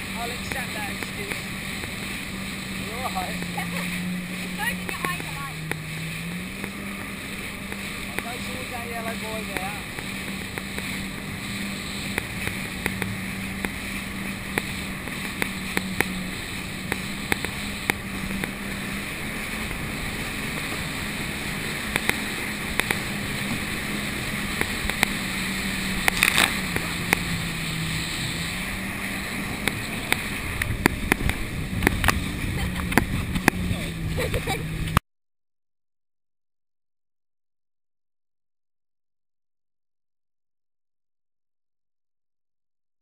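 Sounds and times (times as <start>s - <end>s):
water spray: 0.0s - 32.7s
jet ski engine running: 0.0s - 35.0s
wind on microphone: 0.0s - 35.0s
water taps and slaps: 0.2s - 2.2s, 4.6s - 5.9s, 6.5s - 18.7s, 21.8s - 23.7s, 24.3s - 27.5s, 29.6s - 33.7s.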